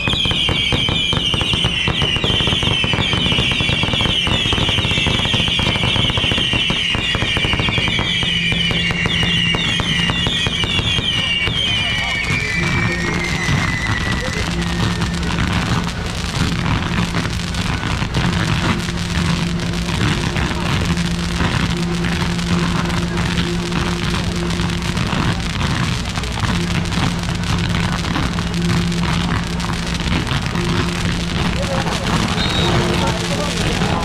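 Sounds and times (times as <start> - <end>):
firecrackers crackling: 0.0 - 34.0
steady low tone: 7.4 - 34.0.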